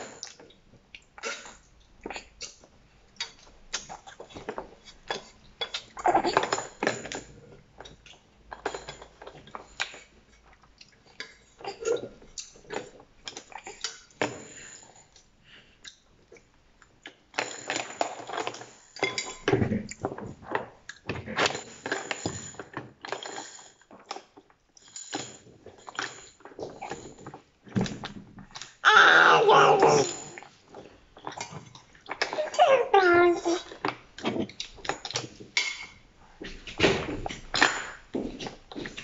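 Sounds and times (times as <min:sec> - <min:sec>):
baby gnawing on plastic toys: 0:27.8 - 0:35.4.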